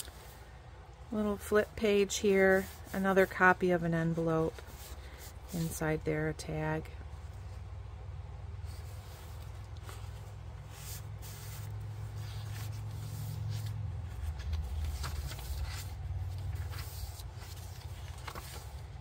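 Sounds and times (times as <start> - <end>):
paper rustling and sliding: 2.2 - 5.8, 8.7 - 19.0.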